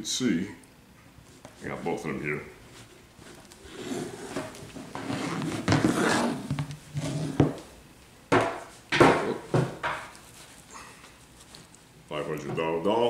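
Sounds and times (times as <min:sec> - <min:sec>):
cloth clothes rustling: 0:01.2 - 0:07.6, 0:10.0 - 0:12.0.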